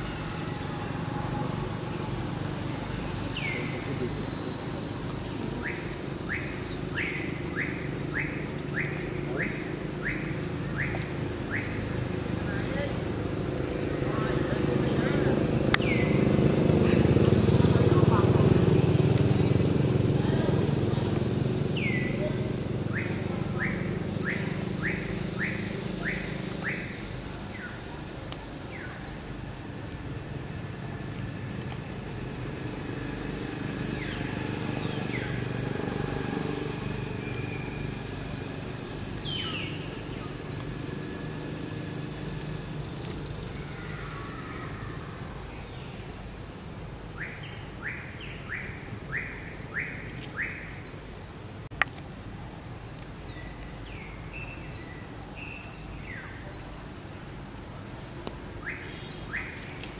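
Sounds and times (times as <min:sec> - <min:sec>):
longer sweeping bird calls: 0:00.0 - 0:30.6, 0:32.5 - 0:51.4, 0:58.0 - 0:59.9.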